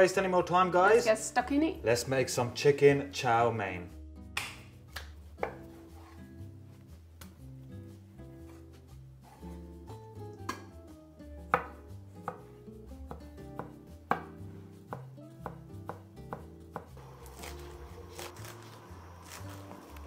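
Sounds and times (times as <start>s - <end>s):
soft background music: 0.0s - 20.0s
knife chopping on cutting board: 4.4s - 6.2s, 11.5s - 19.6s.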